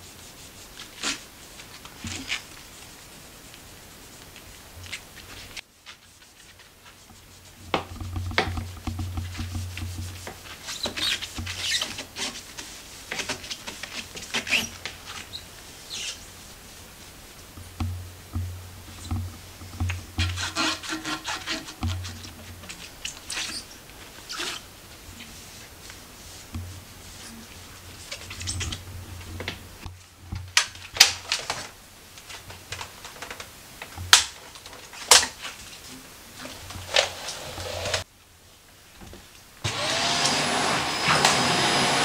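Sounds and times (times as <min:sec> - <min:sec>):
damp cloth wiping wooden spindles: 0:00.0 - 0:30.2.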